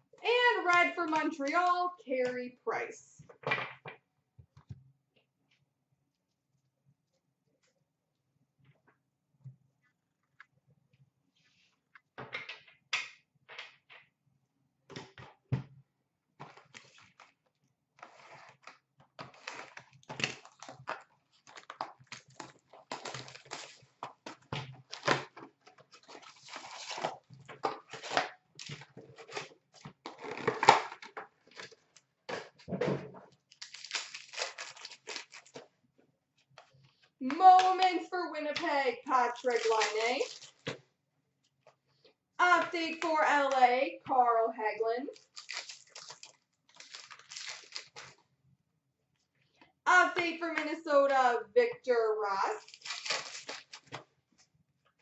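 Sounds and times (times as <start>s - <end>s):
wrapper crinkling and tearing: 18.0s - 23.9s, 25.9s - 31.8s, 33.5s - 35.7s, 39.3s - 40.7s, 45.2s - 48.2s, 52.6s - 54.0s.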